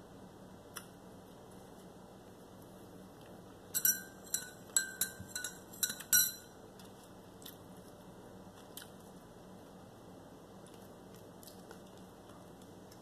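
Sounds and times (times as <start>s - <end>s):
metal spoon clinking on mug: 3.8s - 6.5s.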